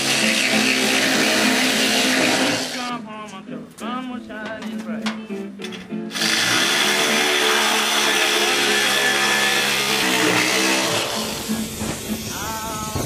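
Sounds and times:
power tool on sheet metal: 0:00.0 - 0:02.9, 0:06.1 - 0:13.0.

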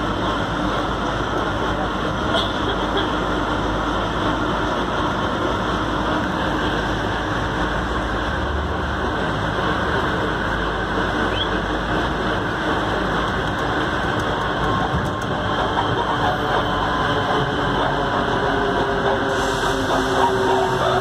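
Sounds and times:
train rolling rumble: 0:00.0 - 0:21.0.

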